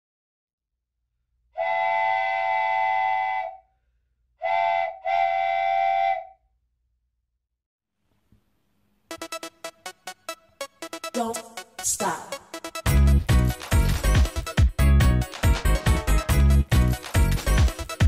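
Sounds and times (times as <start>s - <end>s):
steam train whistle blasts: 1.6s - 3.6s, 4.4s - 6.4s.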